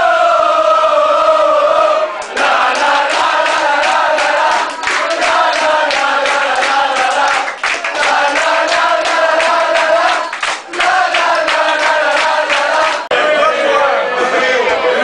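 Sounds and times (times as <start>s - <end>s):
crowd chanting in unison: 0.0s - 15.0s
hand clapping: 2.2s - 13.1s.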